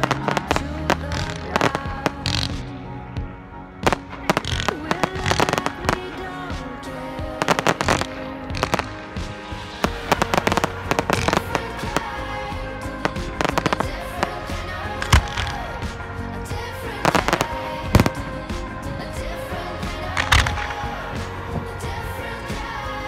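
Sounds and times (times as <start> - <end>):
music playing: 0.0 - 23.0
fireworks bangs and crackles: 3.8 - 16.2, 17.0 - 21.8.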